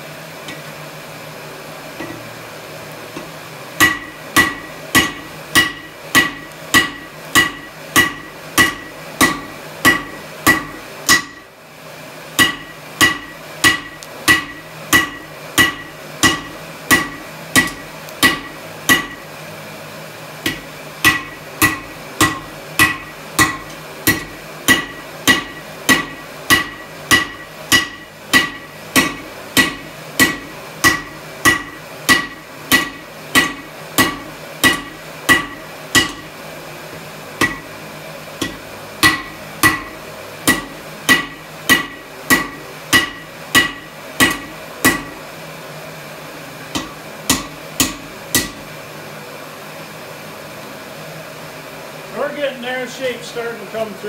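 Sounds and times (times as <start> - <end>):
hammer striking steel on anvil: 3.2 - 11.5, 12.3 - 19.3, 20.4 - 36.3, 37.4 - 37.8, 38.4 - 45.2, 46.7 - 48.7.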